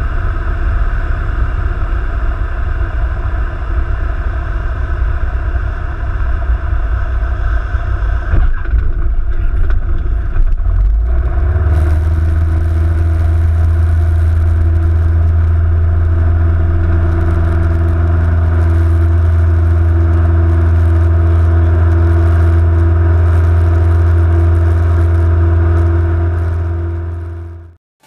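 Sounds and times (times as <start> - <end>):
propeller plane engine drone: 0.0 - 27.8.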